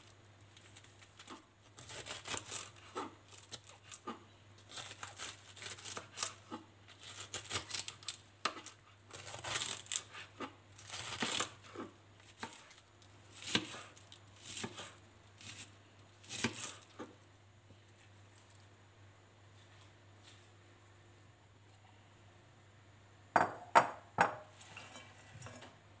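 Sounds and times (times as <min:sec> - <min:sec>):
knife slicing cabbage on wooden board: 0:01.2 - 0:17.1.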